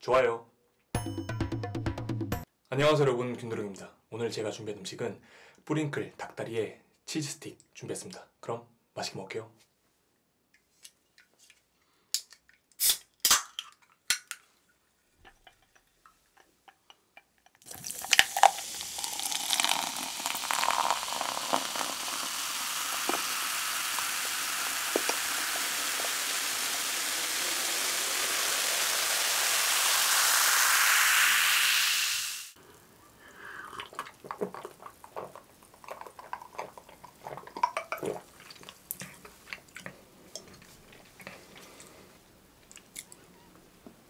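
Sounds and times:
soda can cracking open: 12.1 - 14.5, 17.6 - 32.0
cola fizzing into glass: 17.6 - 32.6, 33.2 - 40.6.

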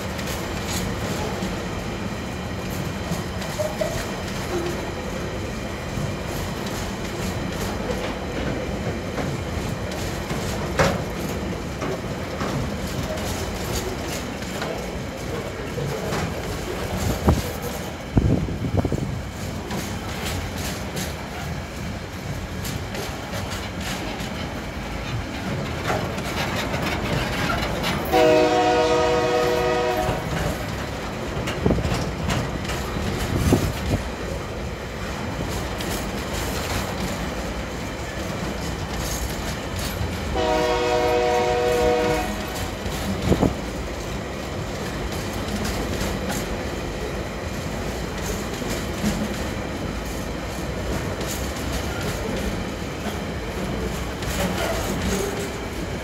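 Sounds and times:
freight train rumbling past: 0.0 - 56.0
wheels clacking over rail joints: 0.0 - 56.0
locomotive horn blasts: 28.1 - 30.3, 40.4 - 42.5.

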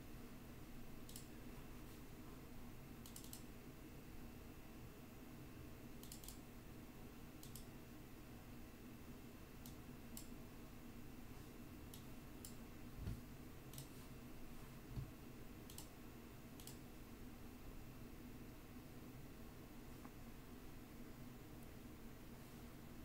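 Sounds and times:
low room hum: 0.0 - 23.0
computer mouse clicks: 1.0 - 1.3, 3.0 - 3.5, 6.0 - 6.4, 7.4 - 7.7, 9.6 - 10.4, 11.9 - 12.6, 13.7 - 14.0, 15.6 - 16.0, 16.6 - 16.9.

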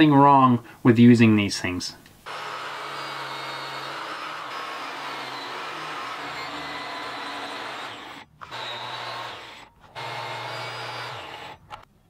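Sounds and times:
biscuit joiner motor running: 2.3 - 11.9.

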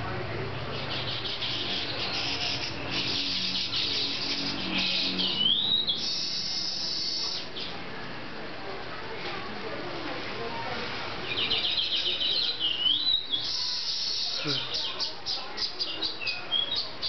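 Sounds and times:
bird chattering and whistling: 0.6 - 7.7, 11.2 - 17.0
bird buzzy wheeze: 6.0 - 7.5.

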